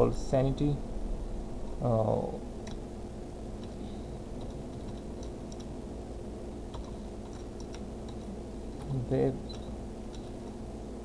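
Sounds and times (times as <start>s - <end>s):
low electrical hum: 0.0s - 11.0s
keyboard typing: 4.4s - 5.7s, 6.7s - 10.6s.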